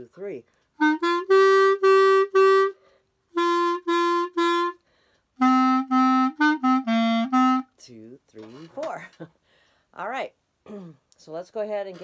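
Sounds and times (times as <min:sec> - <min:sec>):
clarinet short detached notes: 0:00.8 - 0:04.8, 0:05.4 - 0:07.7.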